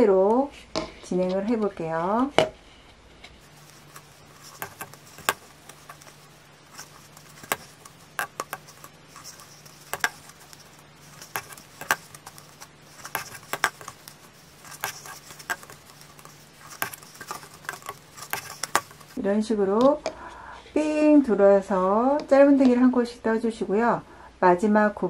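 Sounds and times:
crochet hook tapping plastic cup: 3.5s - 19.2s.

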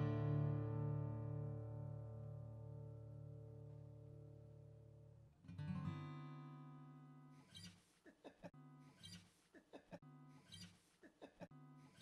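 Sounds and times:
faint guitar music: 0.0s - 7.7s.

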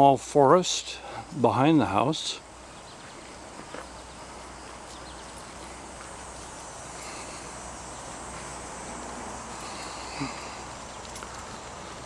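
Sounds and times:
faint insects chirring: 0.0s - 12.0s
outdoor background hiss: 0.0s - 12.0s.

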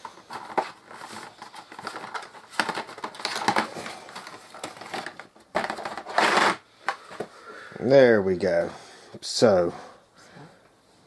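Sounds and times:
cardboard and plastic packaging handled: 0.0s - 7.4s.

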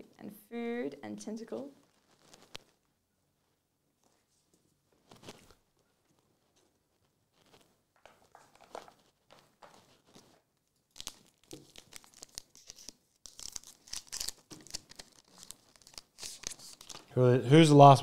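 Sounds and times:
foil wrapper crinkling: 1.8s - 2.8s, 7.0s - 17.1s.

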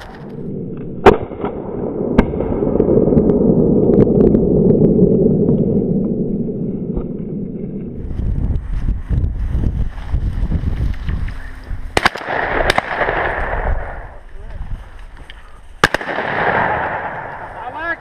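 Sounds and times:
low rushing noise: 0.0s - 18.0s
shotgun shots: 12.0s - 14.1s, 15.8s - 17.7s.

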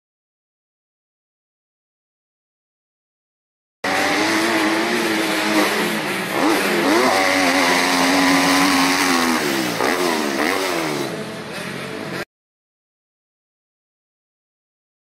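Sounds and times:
dirt bike engine revving: 3.8s - 11.7s.

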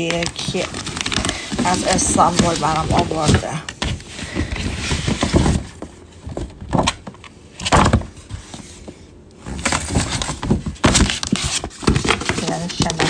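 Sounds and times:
sharp paper crinkles: 0.0s - 3.6s, 9.5s - 13.0s
paper packaging rustling: 0.0s - 13.0s.

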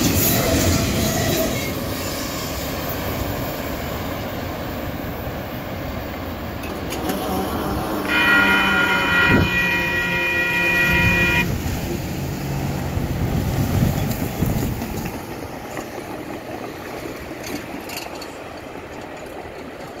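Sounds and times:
crossing warning bell ringing: 8.0s - 11.6s.

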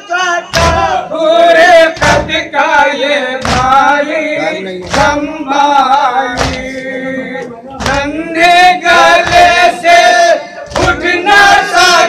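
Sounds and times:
men chanting over microphones: 0.0s - 12.0s.

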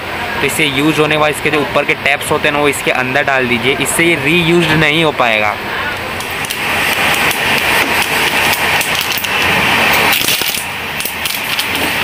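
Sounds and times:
train coach rumble and rattle: 6.0s - 12.0s.

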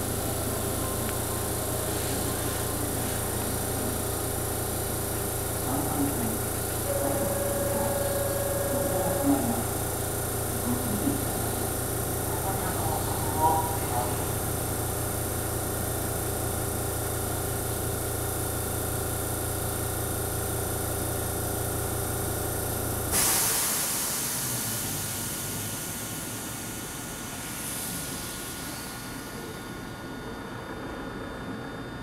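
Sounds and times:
electric train humming: 0.0s - 16.2s
air release hiss: 23.1s - 29.2s.

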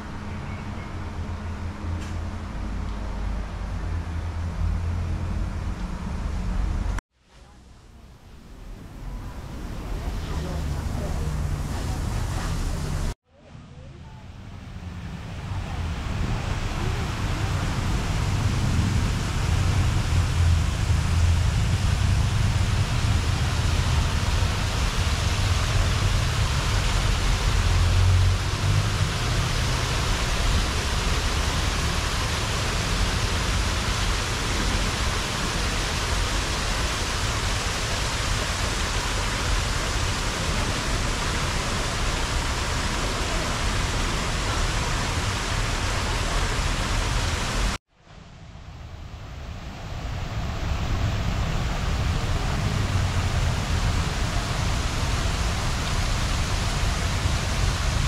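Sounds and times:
waterfall rushing: 8.8s - 13.2s, 15.1s - 47.8s, 49.8s - 58.0s.

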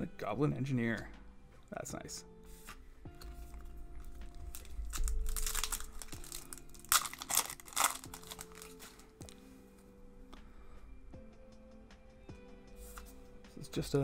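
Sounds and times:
foil wrapper crinkling: 4.4s - 9.1s.

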